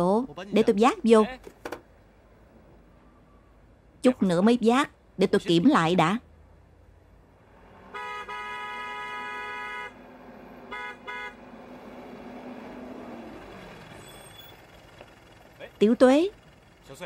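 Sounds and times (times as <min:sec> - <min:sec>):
truck engine hum: 0:00.0 - 0:17.0
truck horn honking: 0:07.8 - 0:12.0.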